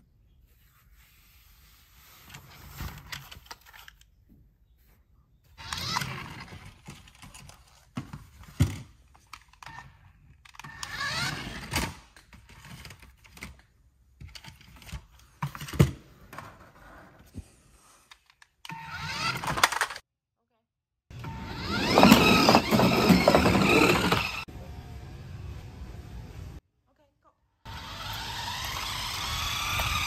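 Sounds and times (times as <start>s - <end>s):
plastic toy car rattling: 19.1s - 20.0s, 21.5s - 24.5s.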